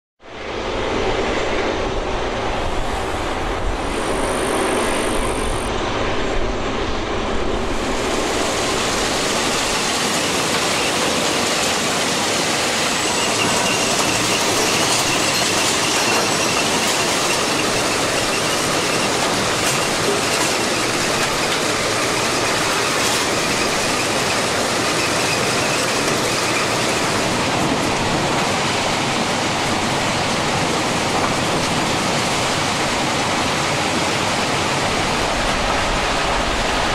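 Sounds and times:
track machine clattering: 8.8 - 28.5
high metallic squeal: 9.5 - 27.3.

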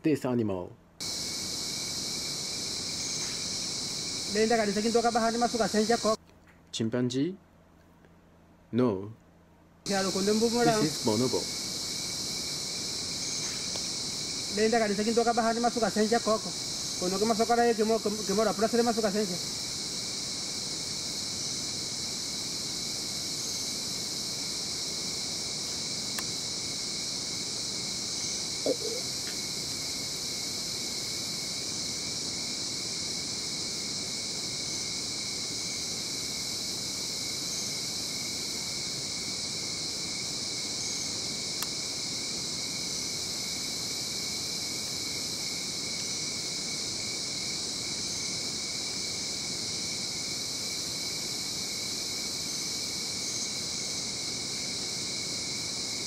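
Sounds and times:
high-pitched insect chorus: 0.0 - 6.2, 9.8 - 56.0.

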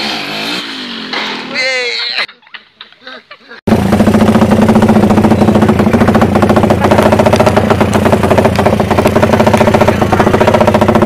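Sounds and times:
motorcycle engine idling loudly: 3.7 - 11.0.

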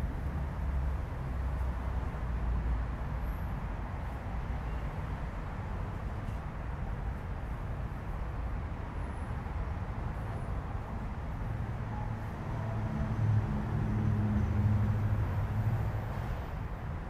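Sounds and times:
low street rumble: 5.7 - 17.0.

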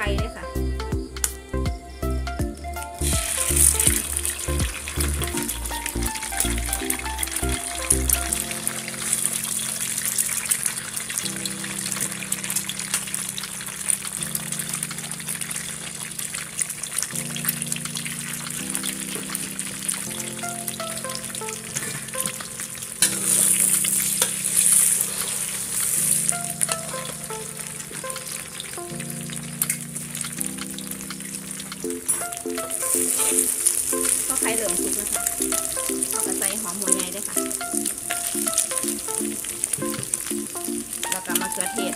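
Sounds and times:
background music: 0.0 - 41.9
eggs sizzling in oil: 0.0 - 41.9
metal spatula scraping: 23.0 - 25.7.

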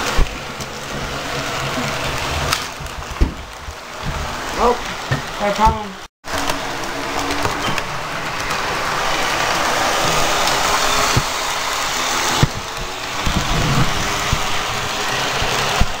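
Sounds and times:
model train running on track: 4.5 - 16.0.

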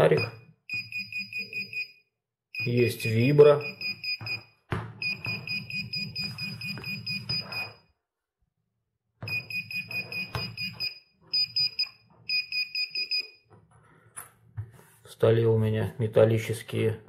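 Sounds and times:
metal detector high beeping: 5.0 - 7.8, 9.3 - 13.3.

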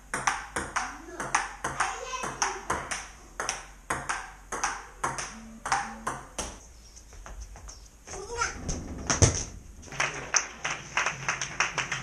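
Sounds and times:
ball bouncing on wooden table: 0.1 - 6.6
ping pong ball clicking on paddle: 0.1 - 6.6.

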